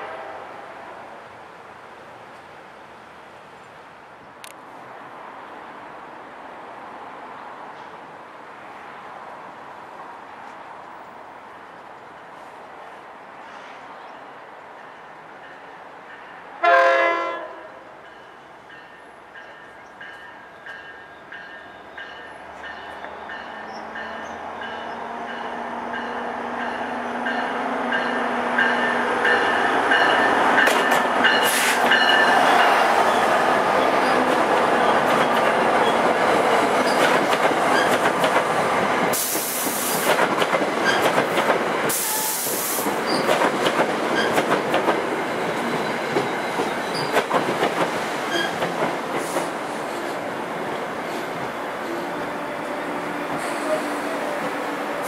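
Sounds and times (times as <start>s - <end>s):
train wheels clacking on rails: 18.1s - 50.2s.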